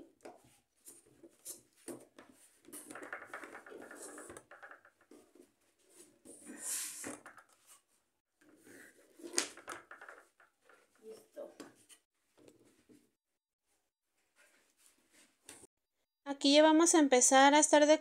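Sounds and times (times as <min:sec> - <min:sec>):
soft rubbing and light knocks: 0:14.2 - 0:15.7.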